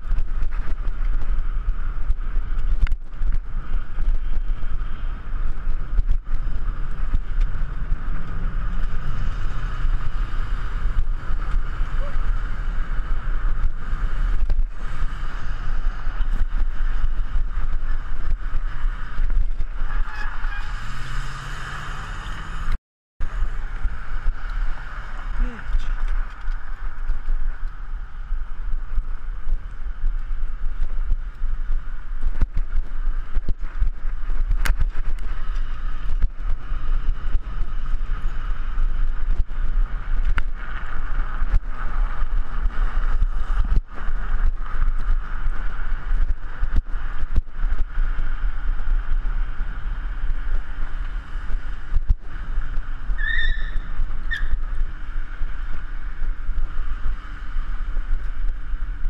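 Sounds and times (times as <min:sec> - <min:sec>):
wind rushing on camera: 0:00.0 - 0:59.0.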